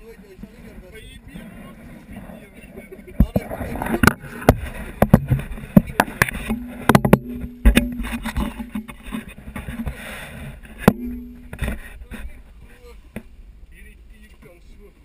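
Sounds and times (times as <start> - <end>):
low steady hum: 0.0 - 15.0
knocks and thumps on boat deck: 3.2 - 10.0, 10.7 - 11.8.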